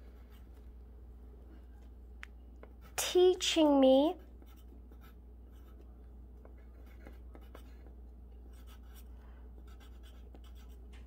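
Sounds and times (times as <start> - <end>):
pencil writing on paper: 4.4 - 7.9, 8.5 - 10.8.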